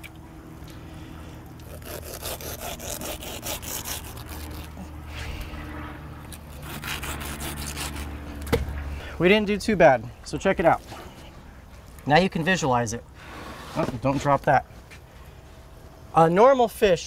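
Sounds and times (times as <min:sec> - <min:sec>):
steady low hum: 0:00.0 - 0:17.0
serrated knife sawing through meat: 0:01.6 - 0:04.9, 0:06.4 - 0:08.2.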